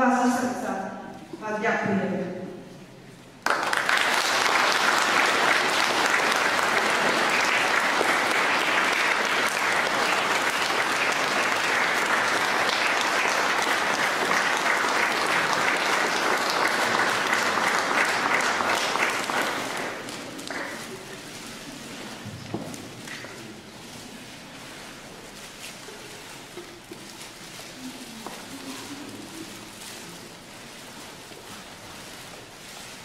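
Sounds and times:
crowd clapping: 3.4s - 21.6s.

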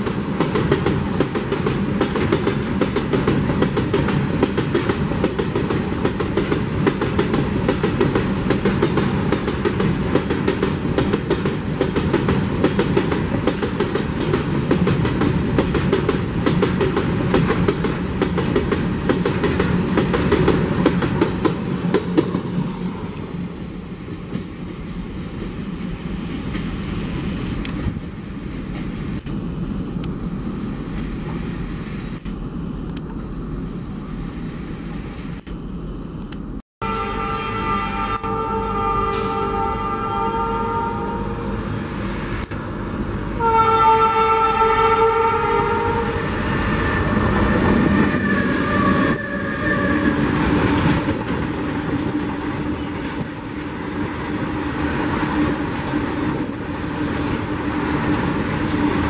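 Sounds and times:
freight train wheels clattering: 0.0s - 22.6s
train rumble: 0.0s - 36.6s, 37.6s - 59.0s.

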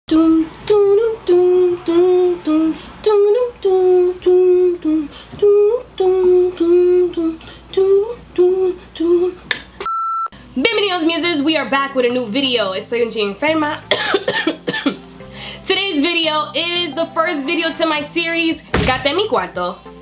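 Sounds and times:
woman humming a wordless tune: 0.1s - 9.4s.

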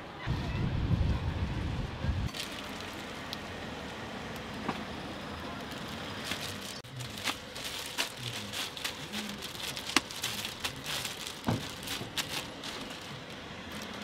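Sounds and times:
plastic gloves crinkling: 2.3s - 3.4s, 5.6s - 14.0s
sharp clicks and crackles: 5.8s - 14.0s
dough squelching: 6.1s - 14.0s.

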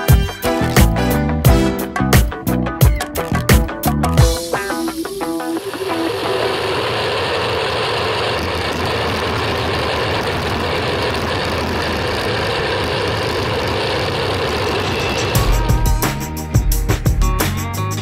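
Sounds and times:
bicycle tyres rolling on asphalt: 6.0s - 15.1s.

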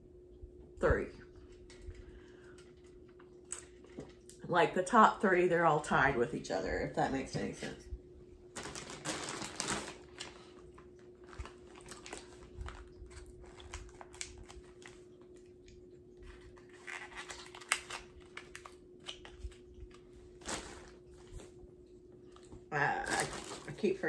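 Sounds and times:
faint steady hum: 0.0s - 24.0s
plastic packaging crinkling: 8.5s - 15.5s, 16.2s - 21.6s, 22.4s - 24.0s.

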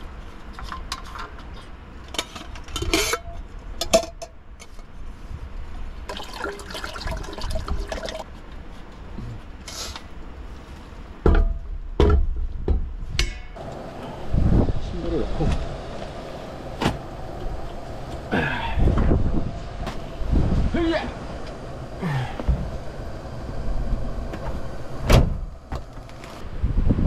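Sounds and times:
water pouring into metal pot: 6.1s - 8.3s.

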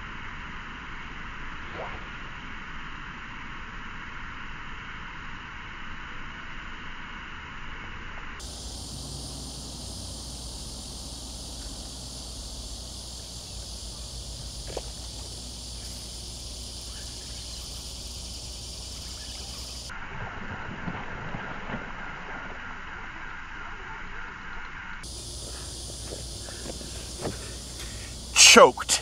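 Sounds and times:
insect chorus: 8.3s - 21.4s, 25.0s - 29.0s
low steady hum: 8.4s - 20.2s, 25.0s - 29.0s.

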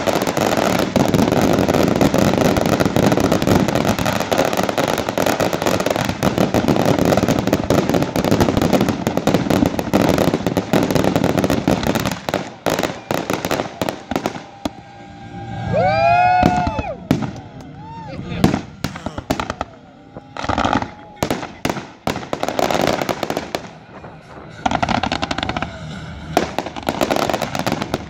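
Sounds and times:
fireworks crackling and popping: 0.0s - 28.0s
person whooping: 12.7s - 21.4s.

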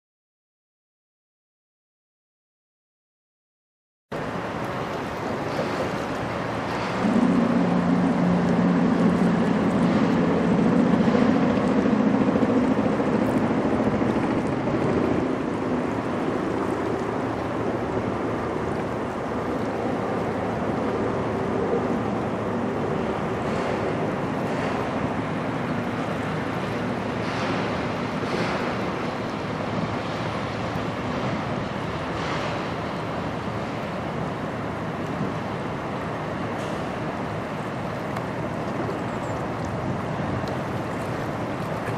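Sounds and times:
river water flowing: 4.1s - 41.9s
wind buffeting microphone: 4.2s - 41.9s
low droning hum: 5.5s - 33.8s.

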